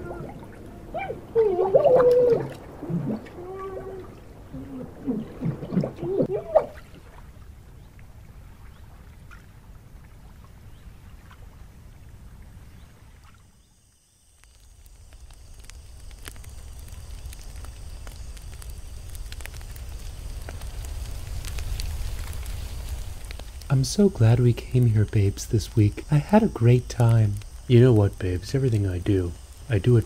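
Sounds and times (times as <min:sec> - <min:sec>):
wood fire crackling: 0:00.0 - 0:07.6, 0:14.2 - 0:30.0
low outdoor rumble: 0:00.0 - 0:13.2, 0:14.4 - 0:30.0.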